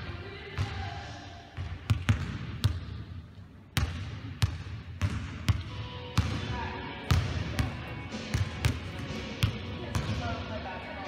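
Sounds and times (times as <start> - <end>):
basketballs bouncing on hardwood floor: 1.6 - 3.0, 3.8 - 10.4.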